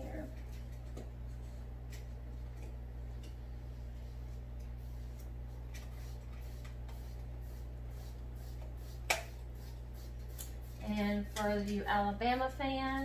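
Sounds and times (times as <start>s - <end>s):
low electrical hum: 0.0s - 13.0s
paintbrush scratching on canvas: 4.1s - 11.6s.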